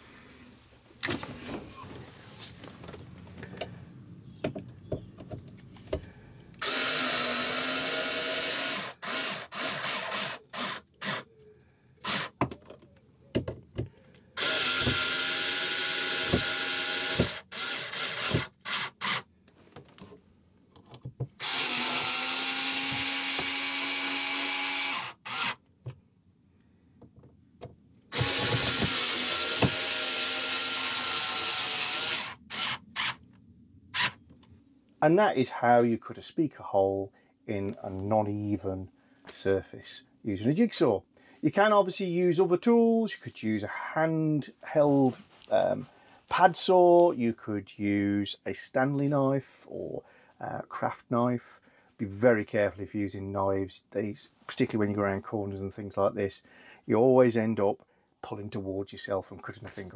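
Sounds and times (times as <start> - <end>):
cordless screwdriver whining: 6.6 - 11.3, 12.0 - 12.4, 14.4 - 19.3, 21.4 - 25.6, 28.1 - 33.2, 34.0 - 34.2.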